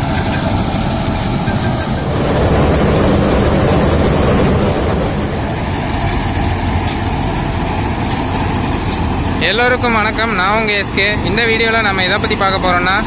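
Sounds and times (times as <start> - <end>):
diesel engine under load: 0.0 - 13.0.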